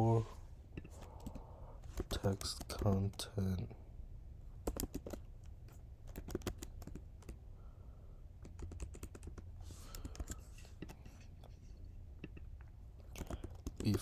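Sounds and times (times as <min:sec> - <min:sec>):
keyboard typing clicks: 0:04.6 - 0:05.2, 0:06.1 - 0:07.4, 0:08.4 - 0:11.0, 0:13.1 - 0:14.0.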